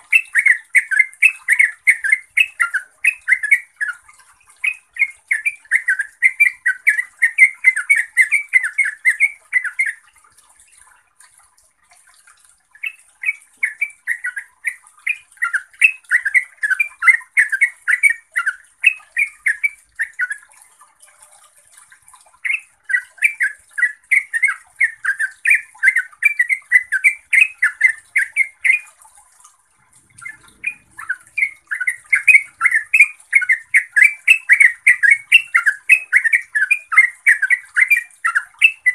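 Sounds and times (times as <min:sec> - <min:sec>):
bird singing chattering notes: 0:00.0 - 0:04.0, 0:12.8 - 0:20.5, 0:22.4 - 0:28.9, 0:30.0 - 0:38.9.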